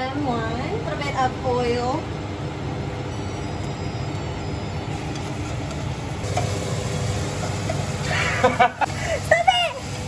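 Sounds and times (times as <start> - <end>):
oil sizzling in a pan: 4.9 - 10.0.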